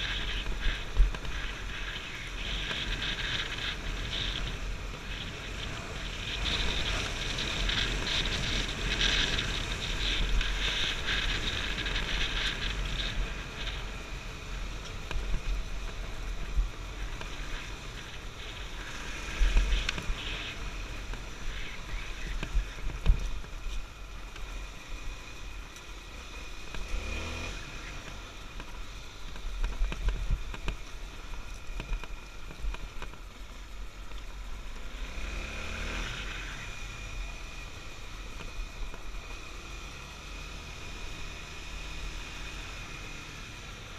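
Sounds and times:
dirt bike engine revving: 26.1 - 28.2, 34.9 - 37.8.

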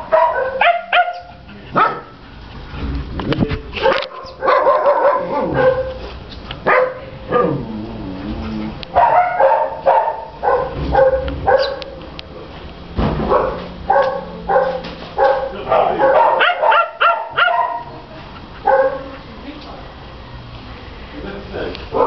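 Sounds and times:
dog barking: 0.0 - 2.1, 3.8 - 6.0, 6.6 - 7.6, 9.0 - 12.0, 13.3 - 18.0, 18.6 - 19.1
dog yelp: 0.1 - 2.1, 3.8 - 6.0, 9.0 - 11.9, 13.3 - 17.9.

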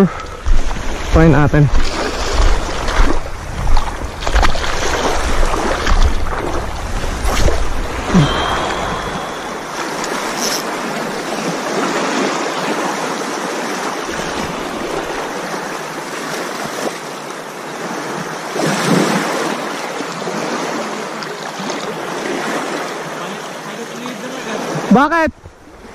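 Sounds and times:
wind buffeting microphone: 0.0 - 12.3
small waves on pebble shore: 0.6 - 24.9.

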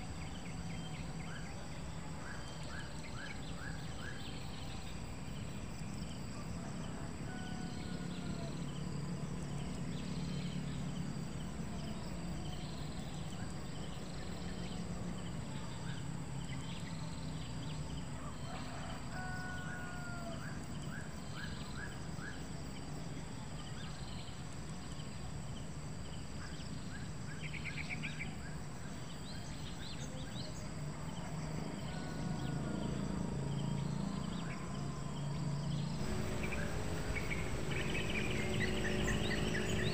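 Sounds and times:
insects buzzing: 0.0 - 39.9
low steady rumble: 34.6 - 39.9
small birds chirping: 35.7 - 39.9.

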